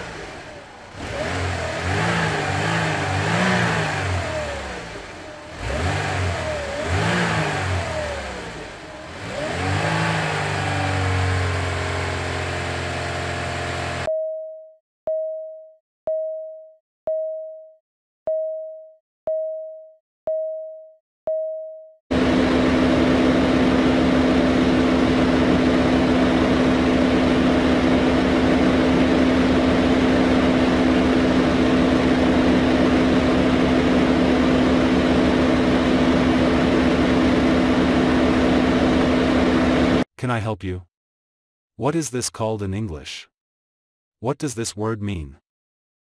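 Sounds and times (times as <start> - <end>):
racing car engine sound effect: 0.0 - 14.1.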